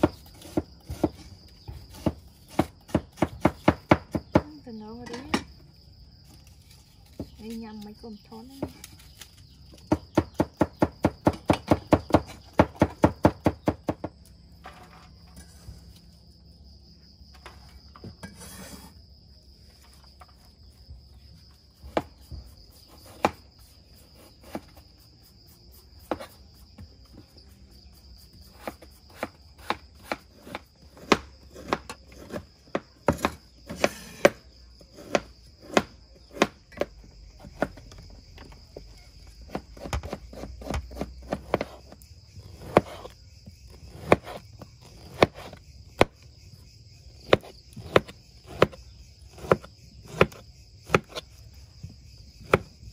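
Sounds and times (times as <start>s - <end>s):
knife chopping on wooden board: 0.0s - 1.2s, 1.8s - 4.6s, 9.8s - 14.2s, 21.8s - 23.4s, 26.0s - 26.8s, 28.5s - 37.8s, 39.5s - 43.1s, 43.9s - 46.2s, 47.2s - 51.2s, 52.4s - 52.7s.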